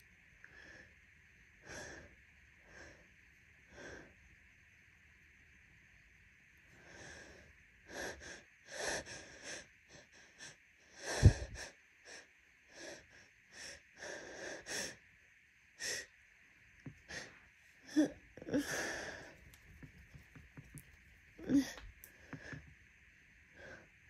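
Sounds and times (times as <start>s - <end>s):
wheezy catching breaths: 6.8s - 15.0s, 16.9s - 20.2s.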